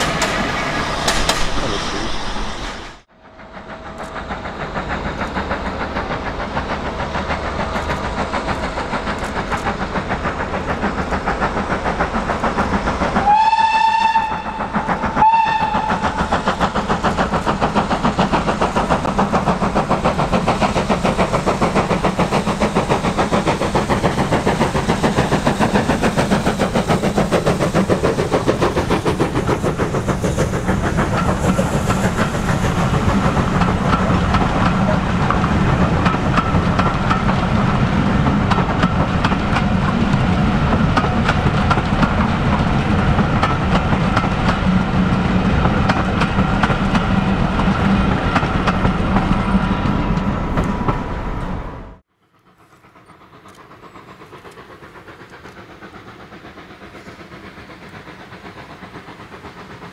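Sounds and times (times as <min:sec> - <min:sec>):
steam locomotive exhaust beating: 0:00.0 - 0:59.9
steam whistle: 0:13.2 - 0:16.3.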